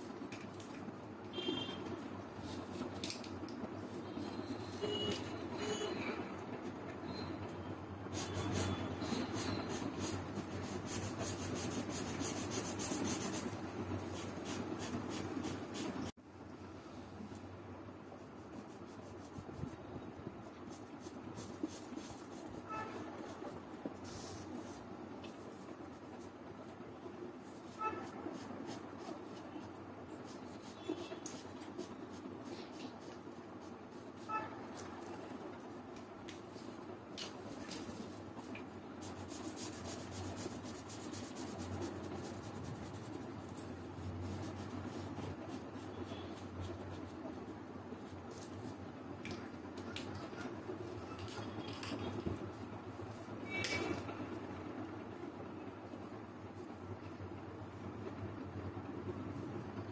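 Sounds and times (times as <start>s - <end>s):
felt-tip marker rubbing on paper: 8.1s - 16.1s, 39.0s - 47.4s.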